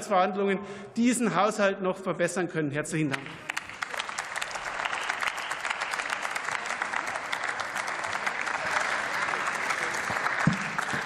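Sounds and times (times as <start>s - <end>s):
crowd applauding: 3.1s - 11.0s.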